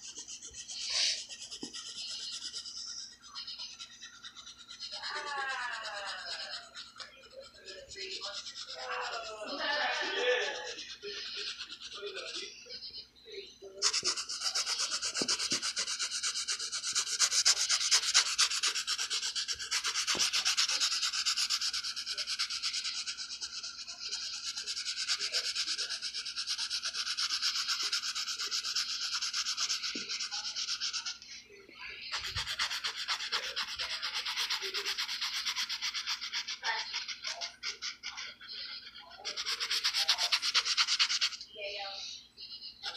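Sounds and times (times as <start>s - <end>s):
pencil scratching on paper: 0.0s - 12.8s, 13.6s - 41.8s.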